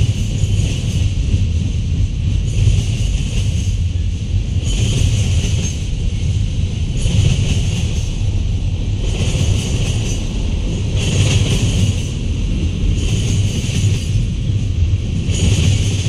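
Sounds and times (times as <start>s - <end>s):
train wheels rumbling on rail: 0.0s - 16.0s.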